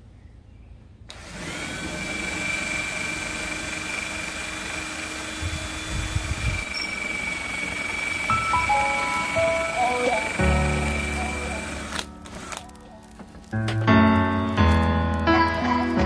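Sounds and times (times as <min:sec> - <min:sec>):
cordless drill boring into wood: 0:01.1 - 0:12.7.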